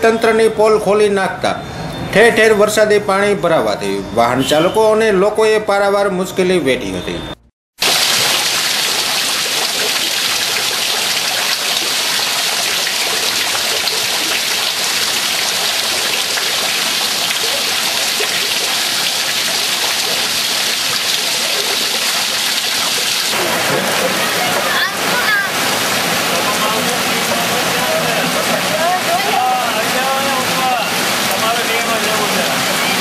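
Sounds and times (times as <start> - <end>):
heavy rain on water: 7.8 - 33.0.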